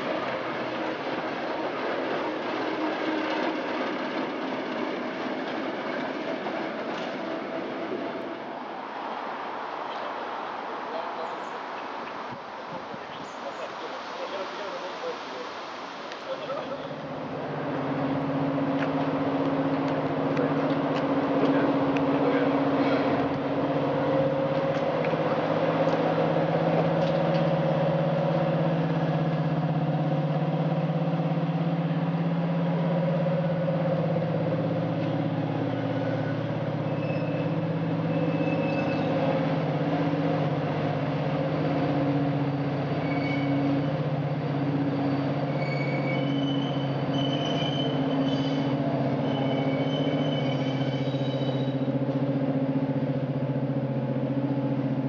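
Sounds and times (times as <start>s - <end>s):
diesel locomotive running: 0.0s - 8.8s, 16.3s - 55.0s
short high squeals: 35.8s - 39.3s, 42.4s - 44.1s, 44.8s - 51.9s.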